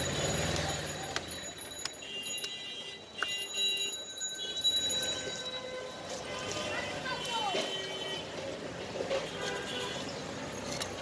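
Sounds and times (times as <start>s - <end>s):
high bell-like ringing tones: 0.0s - 6.1s.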